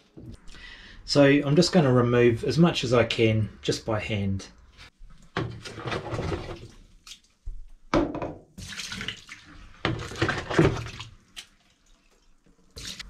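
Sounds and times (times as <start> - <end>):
water poured into metal sink: 8.6 - 13.0
water scooped by hand: 8.6 - 13.0.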